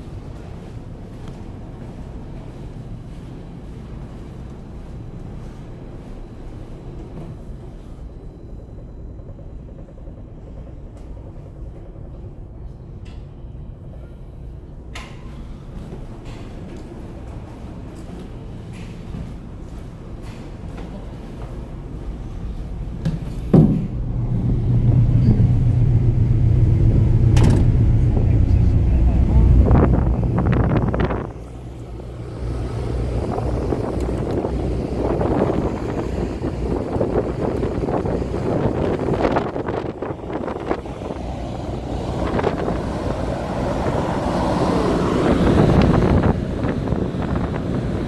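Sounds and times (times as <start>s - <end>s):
ferry engines droning: 0.0s - 48.0s
heavy thump: 23.1s - 24.0s
wind buffeting microphone: 23.9s - 48.0s.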